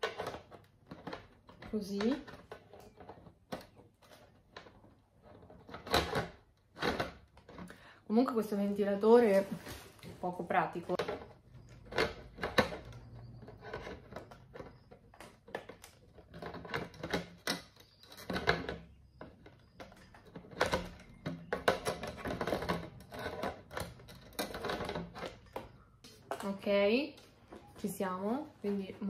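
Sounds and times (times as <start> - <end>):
plastic parts clicking and knocking: 0.0 - 8.0, 10.7 - 27.8.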